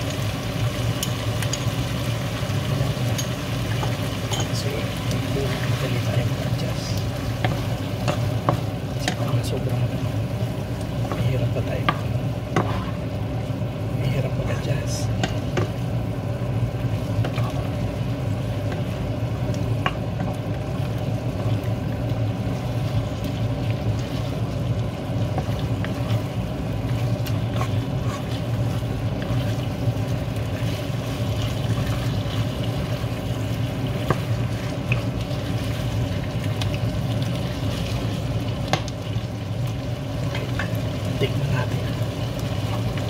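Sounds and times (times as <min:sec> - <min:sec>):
meat sizzling in a frying pan: 0:00.0 - 0:43.0
steady low hum: 0:00.0 - 0:43.0
wooden spatula scraping pan: 0:12.5 - 0:13.0, 0:27.3 - 0:28.5.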